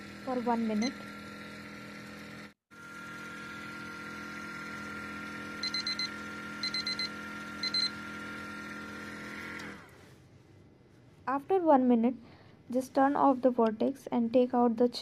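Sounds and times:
vortex mixer humming buzz: 0.0s - 9.9s
timer beeping: 5.6s - 7.9s.

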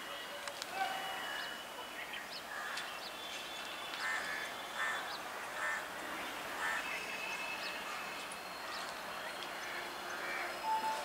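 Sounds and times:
crows cawing: 4.0s - 5.9s, 6.6s - 6.8s, 9.7s - 10.5s.

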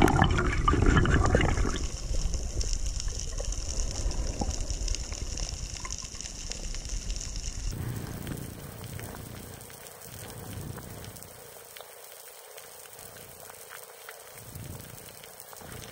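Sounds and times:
low underwater rumble: 0.0s - 11.2s
water hiss: 0.0s - 15.9s.

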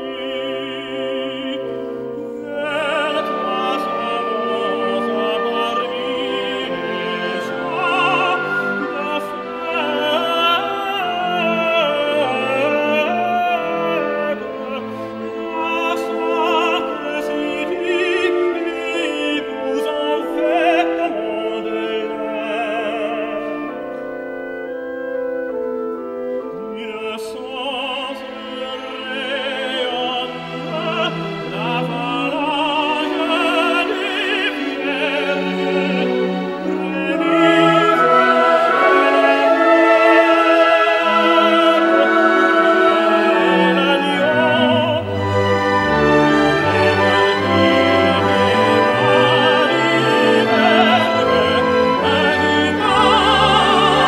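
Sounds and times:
orchestral accompaniment: 0.0s - 54.0s
operatic voice singing: 26.5s - 45.2s, 47.9s - 54.0s.

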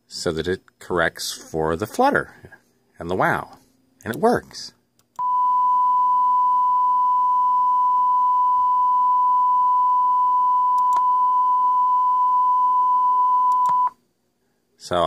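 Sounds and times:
steady test tone: 5.2s - 13.9s.

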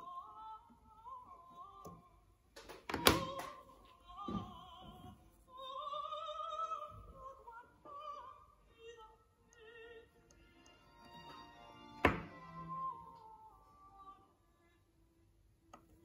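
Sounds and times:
opera singing with vibrato: 0.0s - 2.3s, 2.9s - 10.4s, 12.2s - 14.6s.

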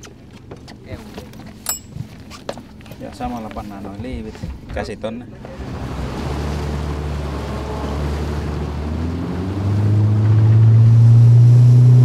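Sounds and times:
motorboat engine running: 3.7s - 12.0s.

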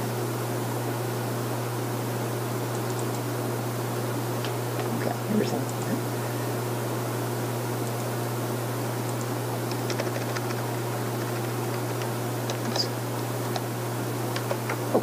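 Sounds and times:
low room hum: 0.0s - 15.0s
computer keys clicking: 9.0s - 13.7s, 14.3s - 15.0s.

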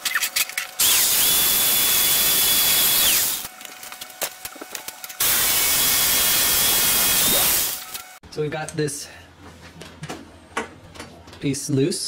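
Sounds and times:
power tool cutting steel: 0.8s - 3.5s, 5.2s - 8.2s.

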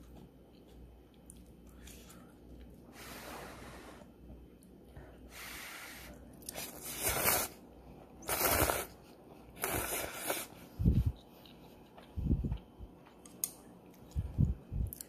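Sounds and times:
noodles being slurped: 6.4s - 7.6s, 8.2s - 9.0s, 9.6s - 10.6s.

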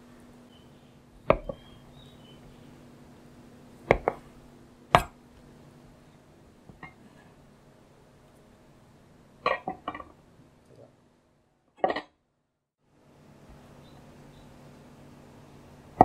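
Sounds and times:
knife striking cutting board: 1.3s - 1.6s, 3.9s - 4.2s, 4.9s - 5.2s.

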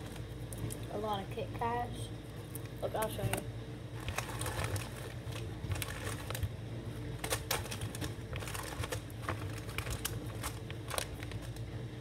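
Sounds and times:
wrappers and plastic bag crinkling: 2.4s - 11.7s.

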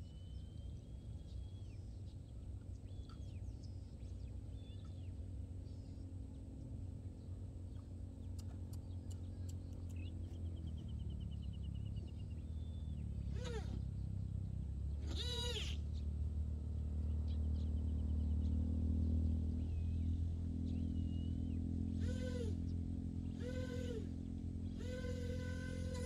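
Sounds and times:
birds whistling: 0.0s - 6.1s, 7.8s - 14.3s, 19.6s - 26.0s
steady low rumble: 0.0s - 26.0s
bird quavering trill: 8.2s - 14.3s, 14.9s - 16.0s, 20.9s - 26.0s.

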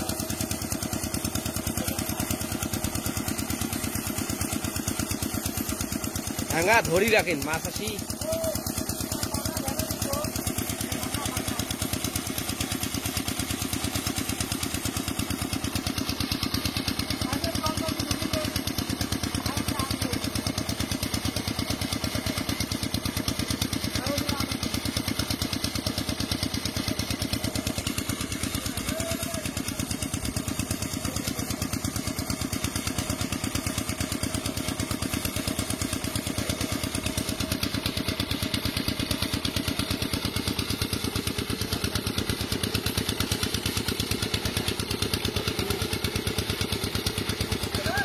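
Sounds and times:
engine running steadily: 0.0s - 48.0s.

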